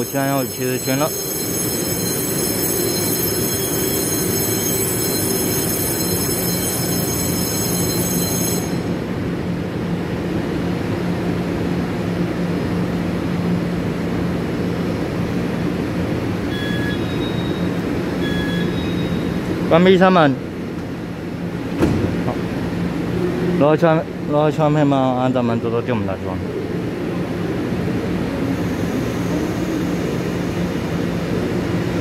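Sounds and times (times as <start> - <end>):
high-pitched whine: 0.0 - 9.2, 26.4 - 32.0
train equipment humming: 0.0 - 24.2, 26.4 - 32.0
short beeps: 16.5 - 19.4.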